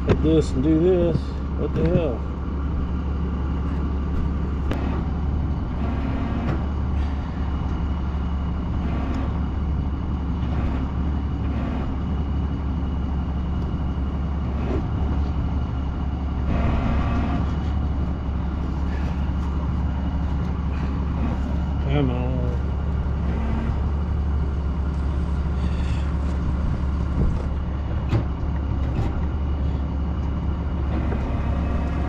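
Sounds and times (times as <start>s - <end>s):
crane engine idling: 0.0s - 32.0s.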